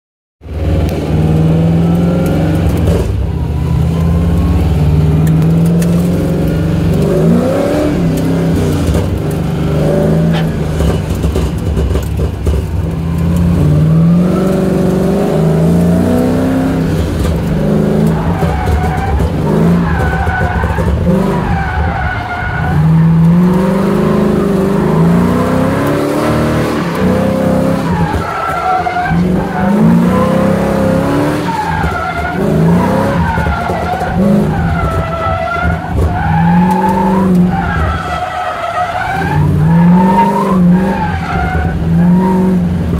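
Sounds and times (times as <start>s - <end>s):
car engine revving: 0.4s - 42.9s
tyres squealing: 17.9s - 42.5s.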